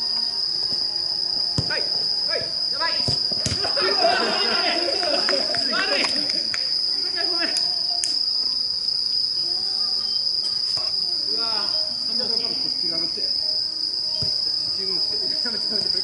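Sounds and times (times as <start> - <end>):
night insects chirping: 0.0 - 16.0
soft ball kicks: 1.5 - 1.8, 2.4 - 3.8, 14.2 - 14.4.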